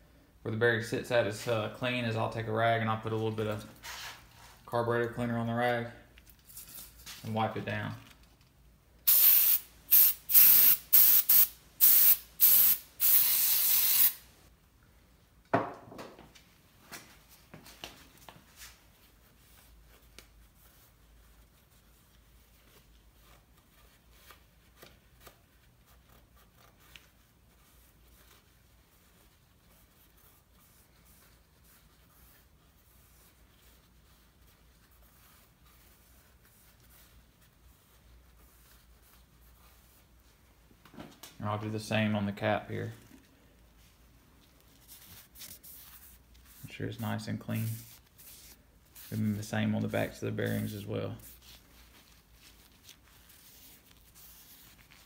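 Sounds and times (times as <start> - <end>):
aerosol spray hissing: 9.1 - 14.2.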